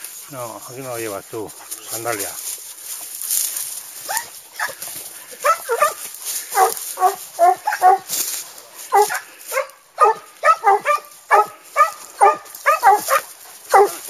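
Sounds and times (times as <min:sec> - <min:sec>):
dog yelping and whining: 0:04.0 - 0:04.8, 0:06.6 - 0:08.1, 0:10.0 - 0:14.0.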